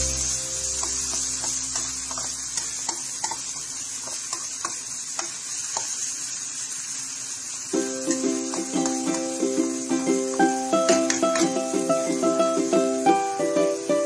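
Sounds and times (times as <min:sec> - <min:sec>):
food sizzling in a frying pan: 0:00.0 - 0:14.0
spatula scraping and tapping pan: 0:00.7 - 0:06.1, 0:08.1 - 0:09.4, 0:10.3 - 0:11.6.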